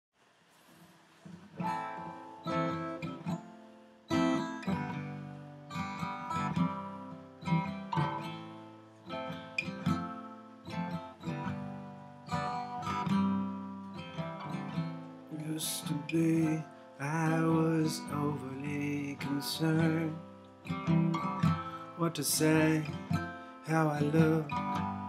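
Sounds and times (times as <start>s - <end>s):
acoustic guitar strumming and picking: 1.2s - 25.0s.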